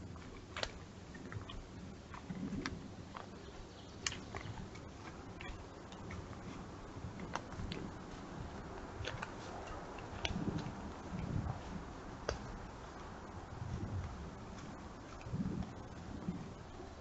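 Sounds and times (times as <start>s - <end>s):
faint low rumble: 0.0s - 17.0s
sharp clicks and snaps: 4.0s - 4.7s.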